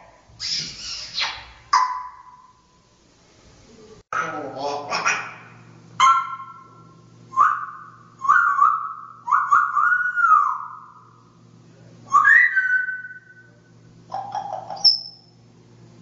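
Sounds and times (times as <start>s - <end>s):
parrot whistling: 0.4s - 2.5s, 6.0s - 11.2s, 12.1s - 15.4s.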